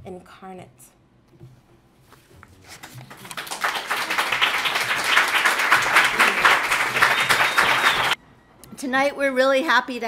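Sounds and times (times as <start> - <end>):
audience clapping: 2.8 - 8.2.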